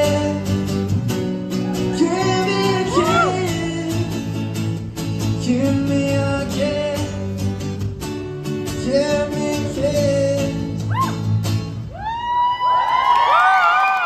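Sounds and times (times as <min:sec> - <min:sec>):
man singing into a microphone: 0:00.0 - 0:00.7, 0:01.8 - 0:04.5, 0:05.3 - 0:07.8, 0:08.7 - 0:11.3
guitar: 0:00.0 - 0:14.0
audience screaming: 0:01.6 - 0:03.6, 0:11.8 - 0:14.0.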